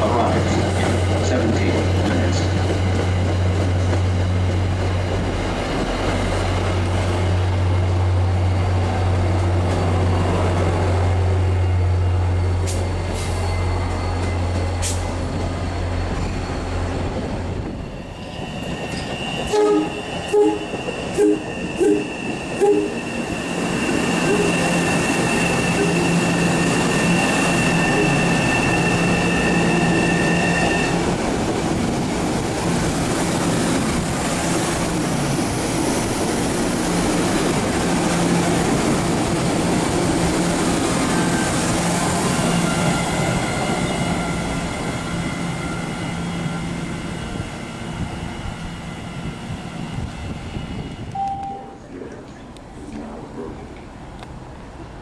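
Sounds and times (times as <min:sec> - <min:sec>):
train high whine: 0:00.0 - 0:55.0
train rolling past: 0:00.0 - 0:55.0
train horn short toots: 0:19.5 - 0:23.0.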